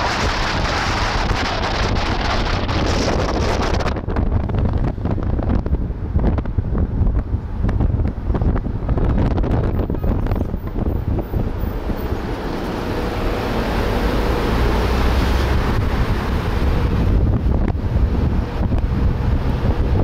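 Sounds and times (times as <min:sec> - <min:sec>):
low road rumble: 0:00.0 - 0:20.0
wind buffeting microphone: 0:00.0 - 0:20.0.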